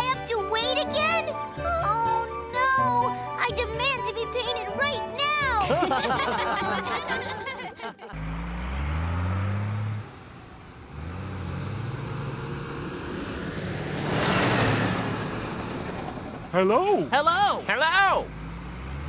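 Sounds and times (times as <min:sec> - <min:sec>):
truck engine revving: 0:08.1 - 0:19.0.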